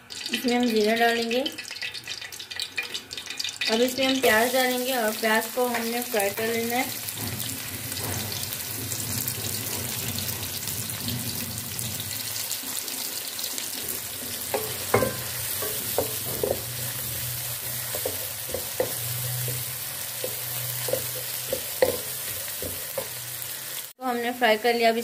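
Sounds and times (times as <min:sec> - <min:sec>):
onions sizzling in hot oil: 0:00.0 - 0:25.0
wooden spoon scraping a pot: 0:05.7 - 0:12.3, 0:13.8 - 0:23.6.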